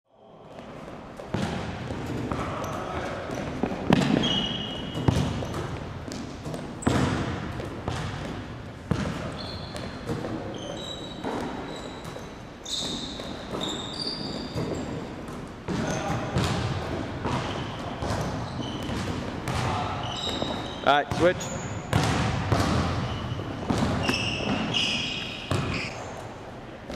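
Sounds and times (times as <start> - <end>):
sneaker squeaks: 0.5 - 26.3
ball bouncing on hardwood floor: 1.2 - 2.4, 3.0 - 10.4, 14.3 - 21.3, 21.9 - 24.7, 25.5 - 25.8
basketball hitting rim: 1.2 - 10.4, 12.9 - 25.9.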